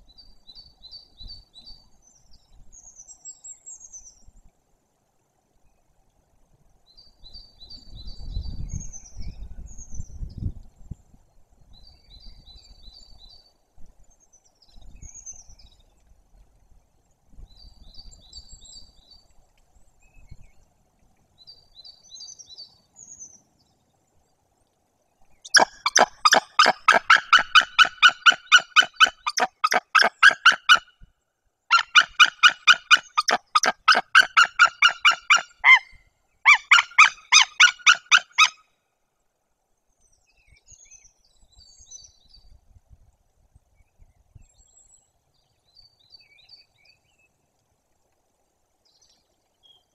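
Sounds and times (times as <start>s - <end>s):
small songbirds singing: 21.4s - 23.9s, 25.2s - 31.0s, 31.7s - 38.6s, 39.9s - 42.6s, 43.8s - 47.4s
eagle yelping calls: 25.5s - 30.9s, 31.7s - 38.6s.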